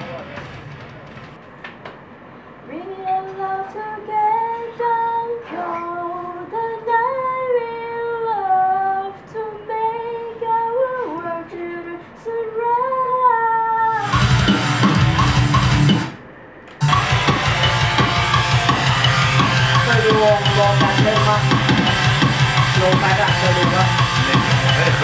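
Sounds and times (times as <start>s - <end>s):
woman singing: 2.7s - 14.2s
rock band playing: 14.0s - 16.2s, 16.8s - 25.0s.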